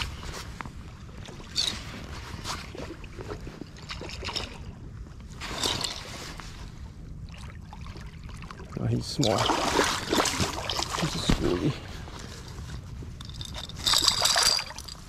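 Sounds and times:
wind rumbling on microphone: 0:00.0 - 0:15.0
fish thrashing and splashing: 0:09.2 - 0:11.6, 0:13.3 - 0:15.0.

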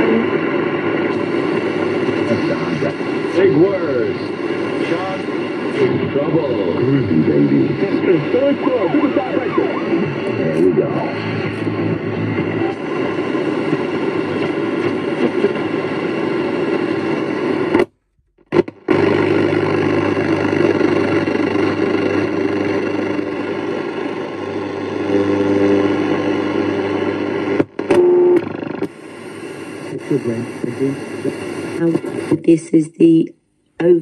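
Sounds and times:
radio static and buzzing: 0:00.0 - 0:33.2.

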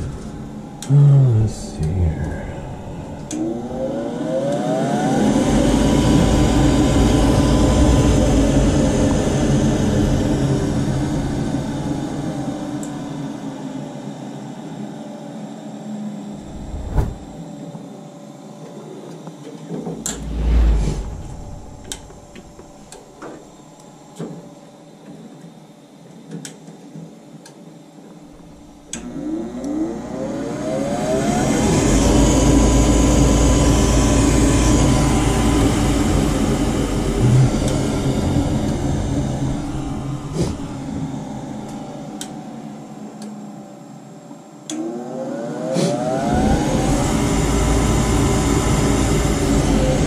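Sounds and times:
low rush of air: 0:00.0 - 0:04.6, 0:16.4 - 0:17.4, 0:20.0 - 0:23.2
furnace motor whine: 0:00.0 - 0:13.4, 0:28.3 - 0:42.5, 0:44.7 - 0:50.0.

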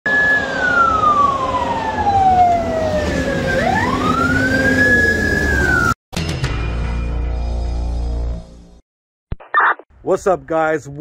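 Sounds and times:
emergency siren wailing: 0:00.1 - 0:06.0.

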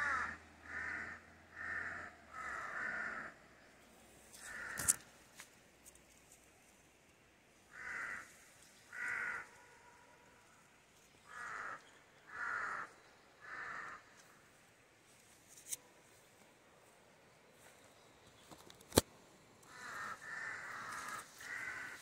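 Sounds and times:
crow cawing: 0:00.0 - 0:03.4, 0:04.4 - 0:05.0, 0:07.7 - 0:10.6, 0:11.2 - 0:14.5, 0:19.6 - 0:22.0.

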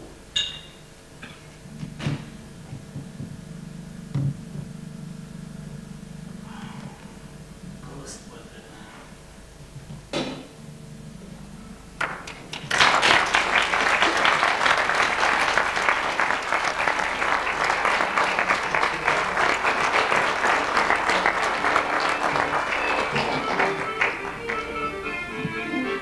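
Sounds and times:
audience applause: 0:12.0 - 0:26.0.

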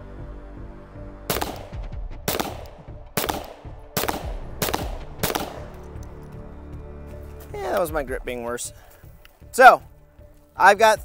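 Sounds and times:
pistol shots with ringing tail: 0:01.3 - 0:05.9.

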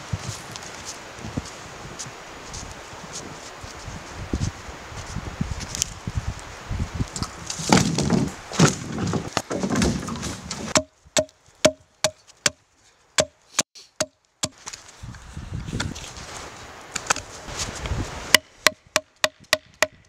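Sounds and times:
footsteps crunching in snow: 0:00.0 - 0:09.4, 0:14.5 - 0:18.3
hollow wooden knocks: 0:07.6 - 0:12.6.

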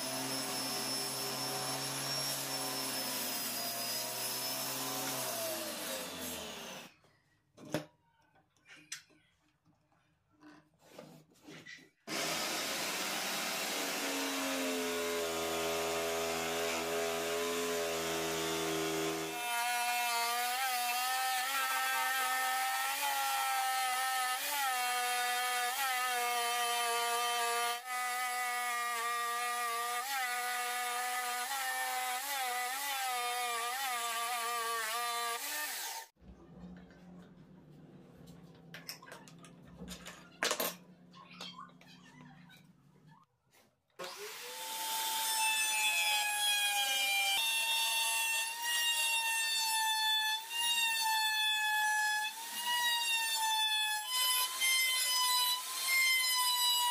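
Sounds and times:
power saw cutting wood: 0:00.0 - 0:06.9, 0:12.1 - 0:36.2, 0:44.0 - 0:56.9.

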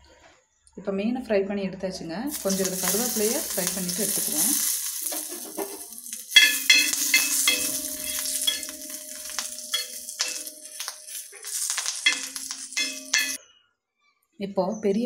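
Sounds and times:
leaves sizzling in hot oil: 0:02.3 - 0:13.4
metal spatula scraping a pan: 0:02.3 - 0:13.4.

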